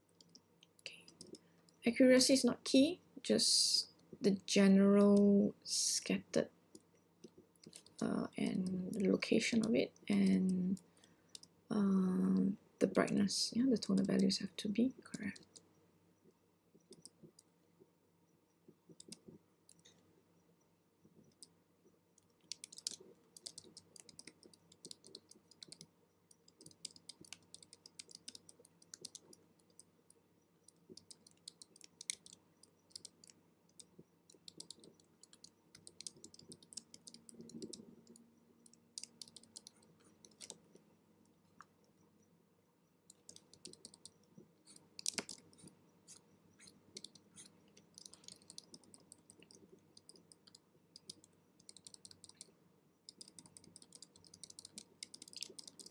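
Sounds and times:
keyboard keys clicking: 18.9 - 19.9, 22.2 - 29.9, 30.6 - 40.8, 43.1 - 55.9.

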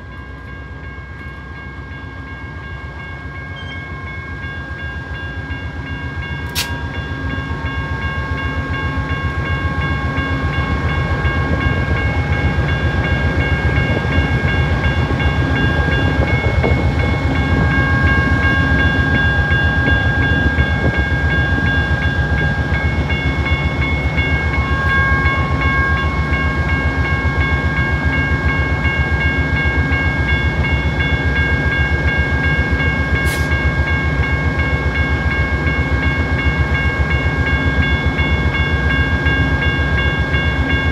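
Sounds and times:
diesel locomotive engine rumbling: 0.0 - 40.9.

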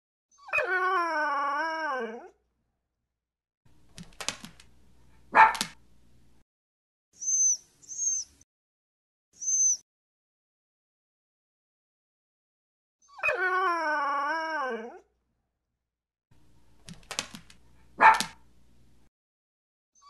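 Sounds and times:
puppy whining howl: 0.3 - 2.3, 13.0 - 15.0
puppy yipping: 5.3 - 5.8, 18.0 - 18.4.

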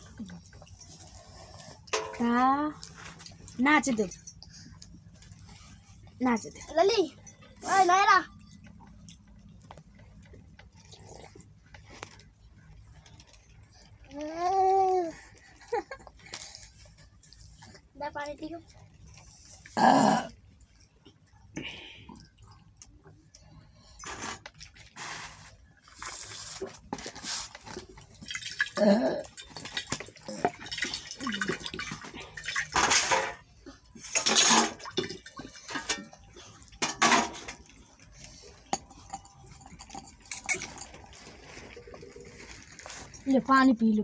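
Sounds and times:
small hard objects clattering: 38.8 - 44.0.

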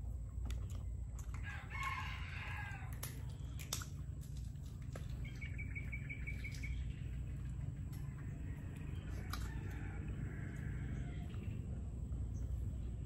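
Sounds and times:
rooster crowing: 1.4 - 3.0, 8.2 - 11.6.

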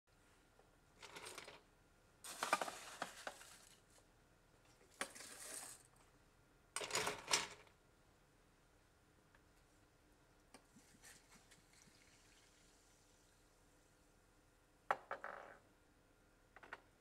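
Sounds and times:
ice cubes clinking: 2.3 - 3.8, 5.1 - 5.9.

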